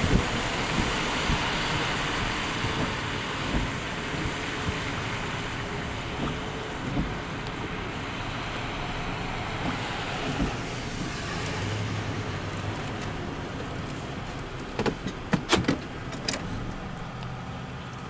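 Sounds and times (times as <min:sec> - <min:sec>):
street noise: 0:00.0 - 0:18.0
vehicle engines rumbling: 0:00.0 - 0:18.0.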